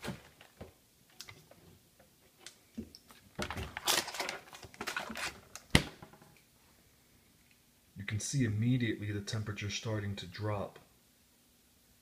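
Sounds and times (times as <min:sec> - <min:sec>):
rustling: 0:00.0 - 0:06.8.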